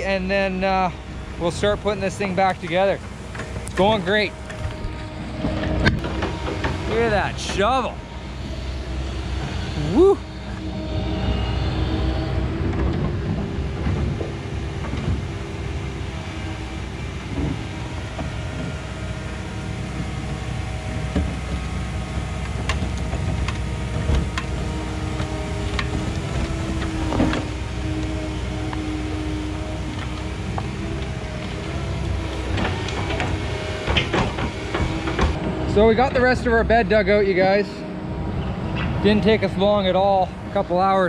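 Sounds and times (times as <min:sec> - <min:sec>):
excavator diesel engine running: 0:00.0 - 0:41.0.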